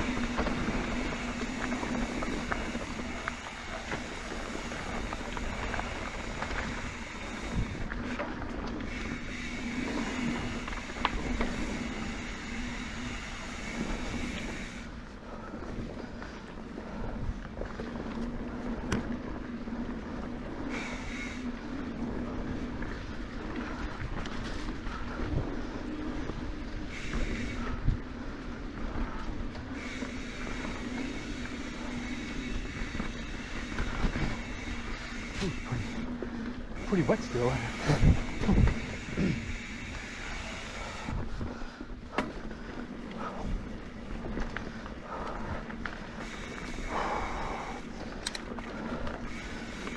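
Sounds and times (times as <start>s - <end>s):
bike tyre noise on dirt: 0.0s - 49.9s
freehub buzzing: 0.0s - 49.9s
steady whine: 0.0s - 49.9s
wind on microphone: 37.6s - 49.5s.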